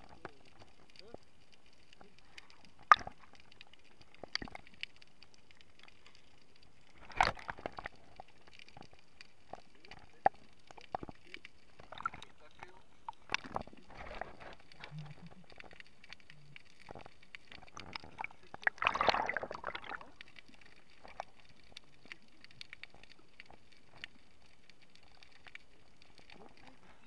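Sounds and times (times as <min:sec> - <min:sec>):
low water hiss: 0:00.0 - 0:27.0
underwater clicks and crackles: 0:00.0 - 0:27.0
water rushing and gurgling: 0:09.7 - 0:27.0.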